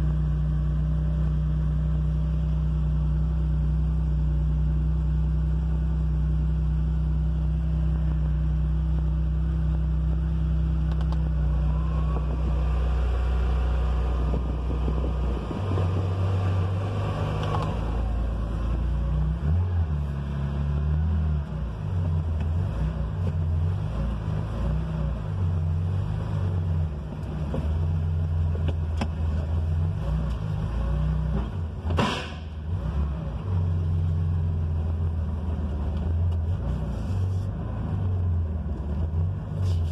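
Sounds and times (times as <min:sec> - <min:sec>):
car engine idling: 0:00.0 - 0:24.5.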